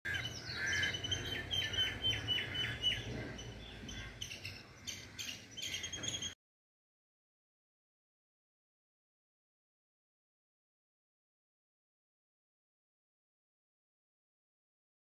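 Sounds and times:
bird calls with falling ends: 0.1 - 6.4.

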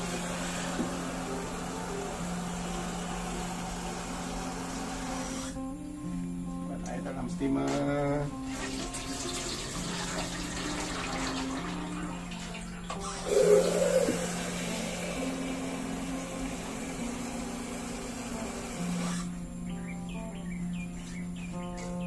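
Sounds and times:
water poured into metal pot: 8.5 - 14.6.

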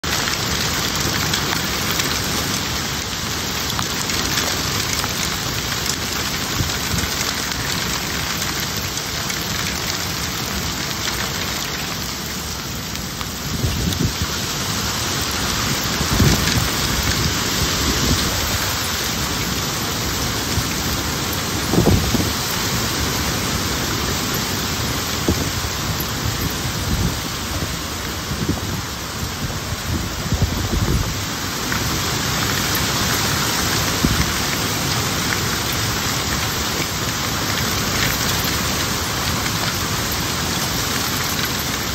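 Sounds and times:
heavy rain and hail: 0.0 - 41.9
wind gusts: 10.2 - 41.9.

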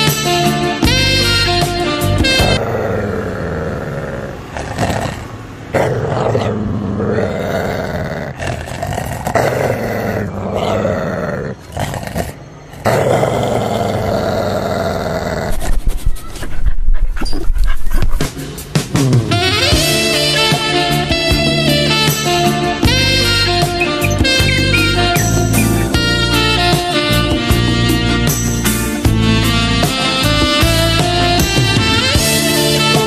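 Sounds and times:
background music: 0.0 - 2.6, 18.2 - 33.0
dog growling: 2.4 - 18.3.

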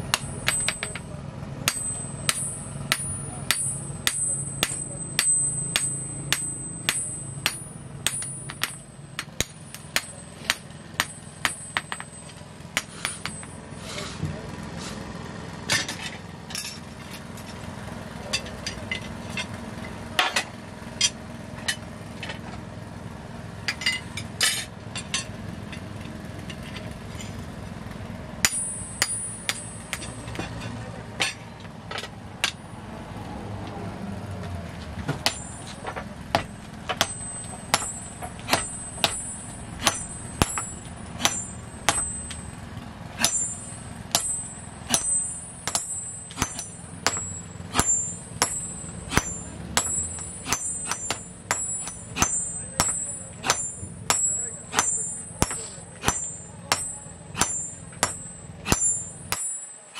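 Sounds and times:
hammer striking steel on anvil: 0.0 - 14.0, 20.2 - 22.4, 23.6 - 25.8, 28.4 - 32.8, 35.1 - 59.9
clinks of metal tools: 0.0 - 14.4, 15.6 - 22.6, 23.6 - 27.4, 28.4 - 32.7, 35.0 - 42.6, 43.2 - 59.9
low steady rumble: 0.0 - 59.6.

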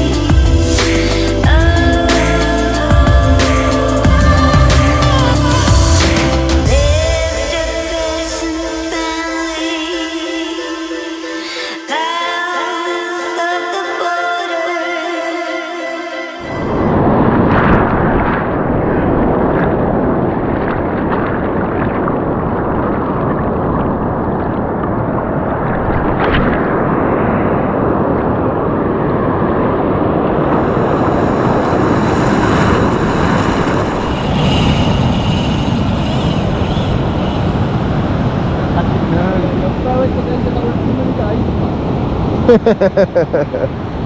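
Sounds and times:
ocean surf breaking: 0.6 - 44.0
wind buffeting microphone: 16.4 - 44.0.

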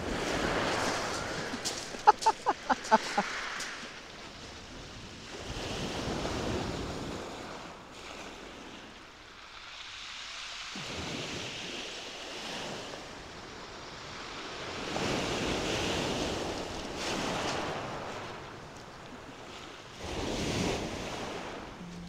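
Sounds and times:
waves breaking on shingle: 0.0 - 4.0, 16.0 - 21.4.

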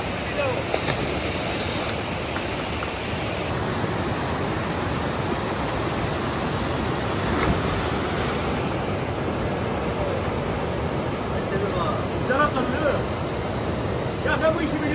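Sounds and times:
rushing water: 0.0 - 14.9.

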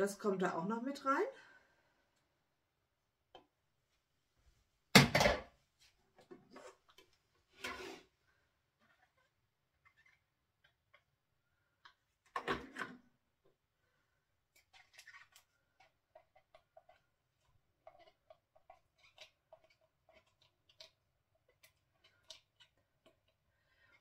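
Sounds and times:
spatula scraping plastic bowl: 6.2 - 8.2, 14.6 - 24.0.

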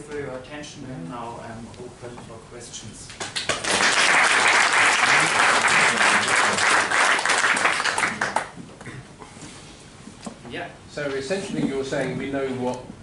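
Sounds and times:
audience applauding: 3.2 - 8.6.

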